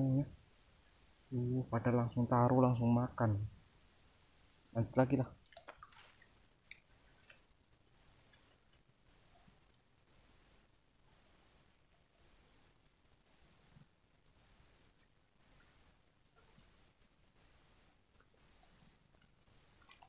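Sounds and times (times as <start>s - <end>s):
high-pitched insect trill: 0.0s - 20.0s.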